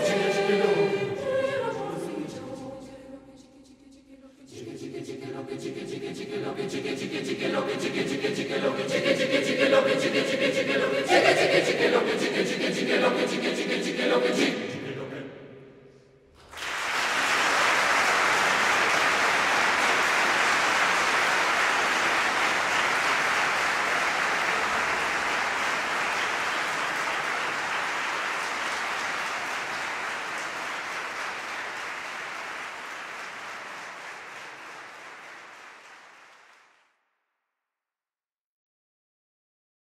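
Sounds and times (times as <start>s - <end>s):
audience applauding: 16.4s - 36.8s.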